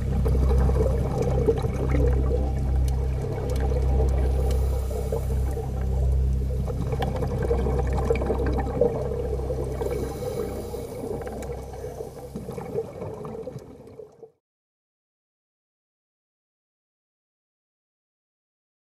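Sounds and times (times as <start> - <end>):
underwater low hum: 0.0 - 14.4
watery gurgling: 0.0 - 14.4.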